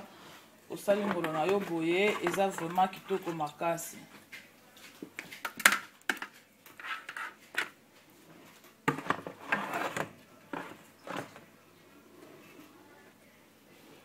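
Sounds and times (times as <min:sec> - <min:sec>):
tray scraping into oven: 0:08.9 - 0:11.4.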